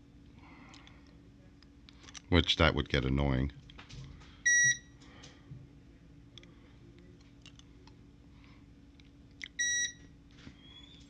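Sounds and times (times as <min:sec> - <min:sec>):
short high alarm beeps: 0:04.5 - 0:04.8, 0:09.6 - 0:10.0.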